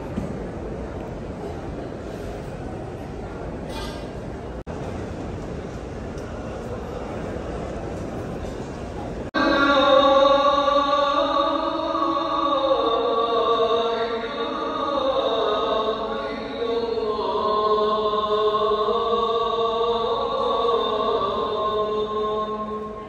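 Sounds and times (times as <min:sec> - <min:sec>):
person chanting slow melody: 0:09.4 - 0:23.0.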